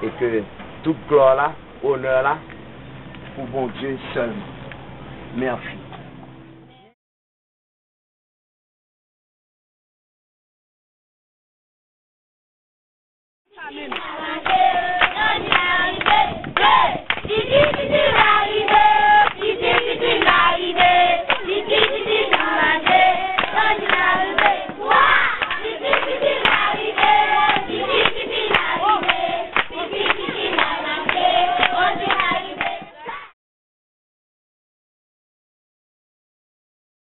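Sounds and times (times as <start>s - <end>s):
children singing in unison: 13.6s - 33.3s
rhythmic hand clapping: 13.8s - 33.2s.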